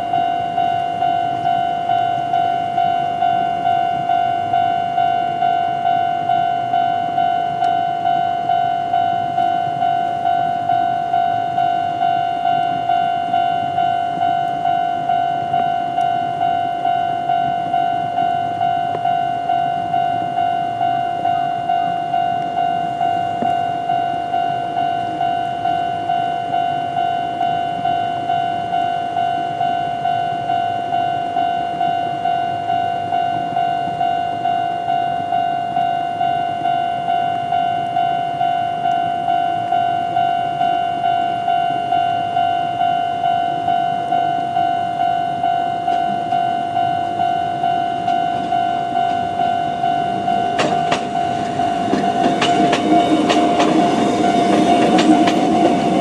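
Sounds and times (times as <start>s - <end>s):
level-crossing warning bell: 0.0s - 56.0s
train rumble: 0.0s - 56.0s
train wheels clacking over rail joints: 50.4s - 56.0s.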